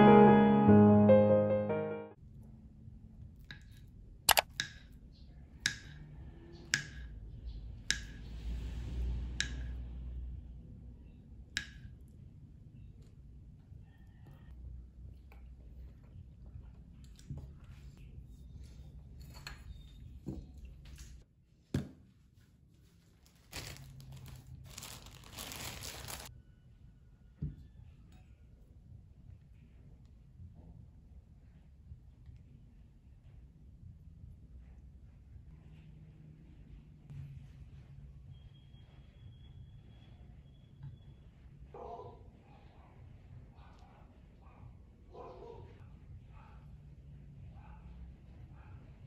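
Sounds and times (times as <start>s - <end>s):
plastic bag crinkling: 23.2s - 26.3s.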